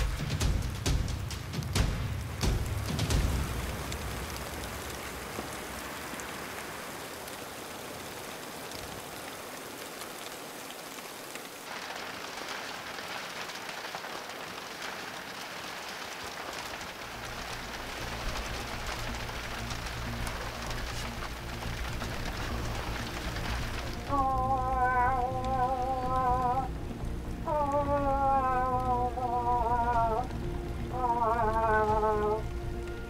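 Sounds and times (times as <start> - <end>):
low background music: 0.0 - 6.3, 17.0 - 33.0
steady rain falling: 0.0 - 33.0.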